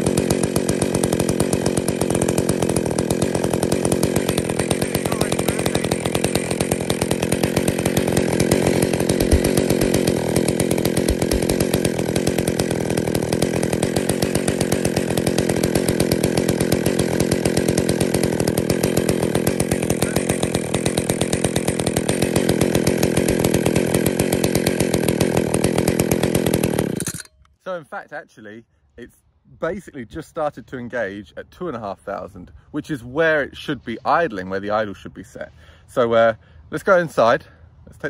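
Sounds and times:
chainsaw idling: 0.0 - 27.5.

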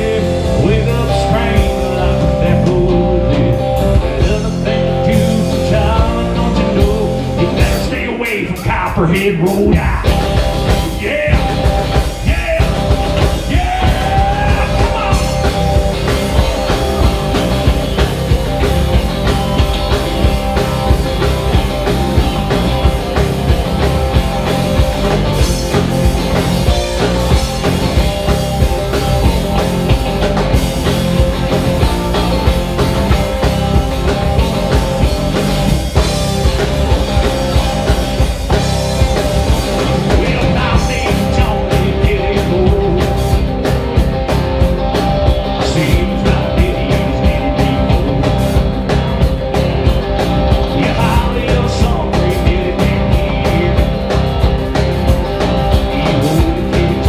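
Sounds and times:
drum kit: 0.0 - 57.0
electric bass: 0.0 - 57.0
electric guitar: 0.0 - 57.0
person singing into microphone: 10.8 - 15.4, 40.1 - 43.3, 50.8 - 54.0.

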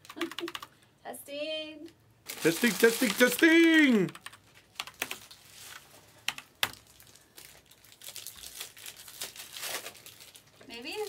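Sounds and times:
foil card wrappers crinkling: 2.3 - 6.0, 6.6 - 11.0.

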